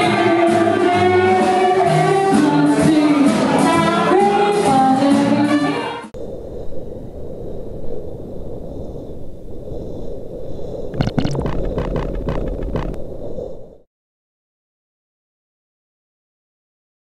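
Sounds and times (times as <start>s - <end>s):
steady low rumble: 6.2s - 13.8s
sharp clicks and cracks: 11.0s - 13.0s.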